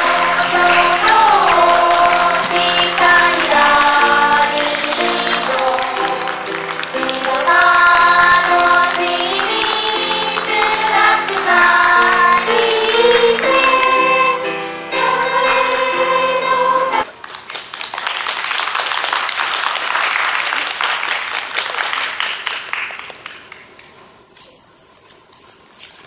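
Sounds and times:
applause: 0.0s - 14.0s, 15.0s - 15.7s, 17.0s - 24.0s
children singing in chorus: 0.0s - 17.0s
instrumental accompaniment: 0.0s - 17.0s.

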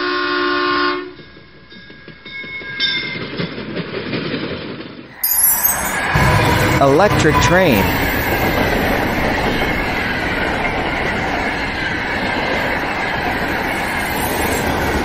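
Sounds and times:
train wheels rushing on rails: 1.2s - 5.0s, 5.9s - 15.0s
faint high tones falling in pitch: 5.2s - 6.4s.

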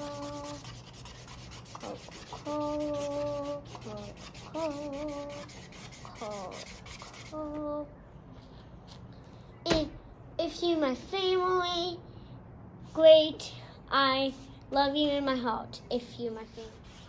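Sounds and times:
child humming: 0.0s - 0.7s, 1.8s - 5.6s
marker scratching on paper: 0.0s - 7.6s, 16.4s - 17.0s.

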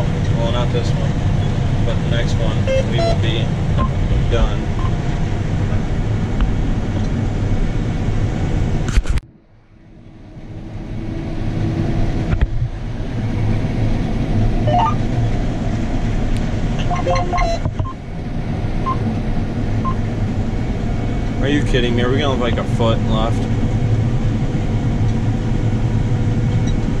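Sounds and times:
combine harvester droning: 0.0s - 27.0s.

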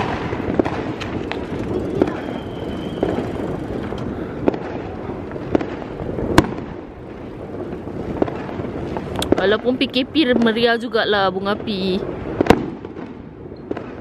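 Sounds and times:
steady rumble: 0.0s - 13.5s
fireworks bangs: 0.0s - 14.0s
faint high whistle: 1.9s - 3.4s.

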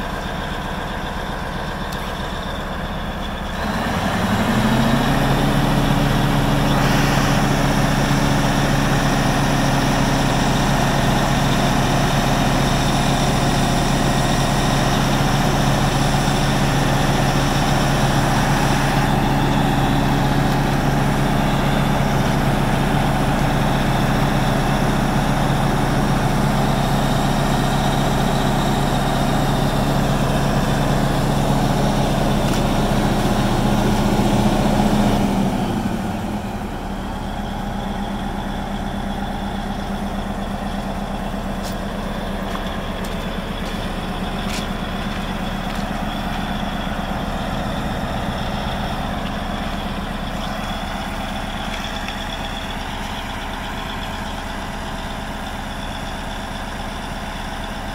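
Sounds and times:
diesel engine running: 0.0s - 57.9s.

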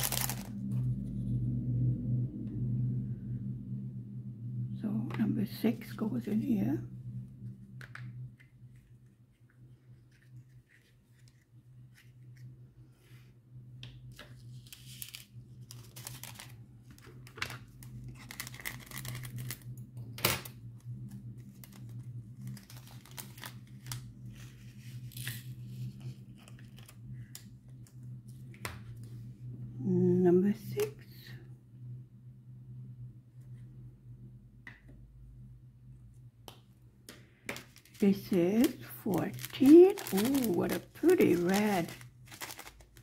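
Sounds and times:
plastic bag rustling and crinkling: 0.0s - 0.7s, 14.3s - 19.7s, 21.1s - 27.0s, 37.6s - 43.0s
low steady hum: 0.0s - 43.0s.

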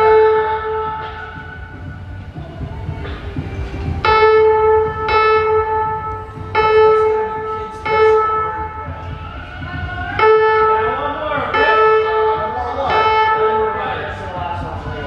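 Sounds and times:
train horn blasts: 0.0s - 1.2s, 4.0s - 9.0s, 10.1s - 13.8s
low rumble: 0.0s - 15.0s.

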